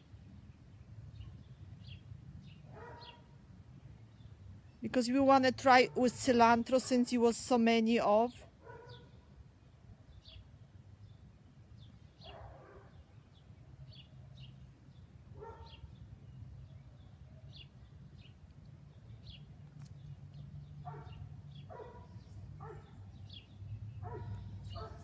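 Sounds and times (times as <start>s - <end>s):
faint dog barks: 2.7s - 3.4s, 8.6s - 9.2s, 12.2s - 13.1s, 15.4s - 15.9s, 20.8s - 23.2s, 24.0s - 25.0s.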